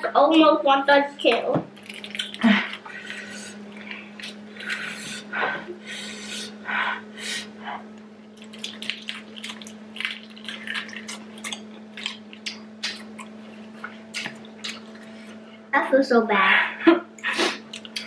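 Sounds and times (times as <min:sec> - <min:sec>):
steady low hum: 0:00.0 - 0:18.0
wet chewing: 0:01.7 - 0:05.3, 0:07.3 - 0:15.4, 0:17.2 - 0:18.0
loud breaths: 0:02.4 - 0:07.9.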